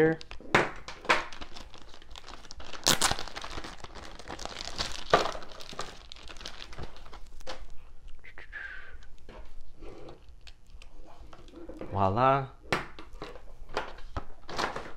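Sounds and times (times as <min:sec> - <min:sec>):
plastic packaging crinkling: 0:00.0 - 0:07.8, 0:09.1 - 0:11.8.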